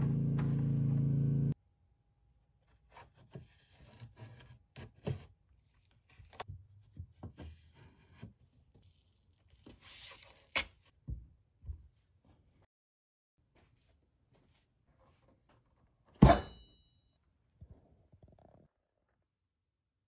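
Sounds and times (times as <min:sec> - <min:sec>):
tape being pulled and torn: 0:09.5 - 0:10.8.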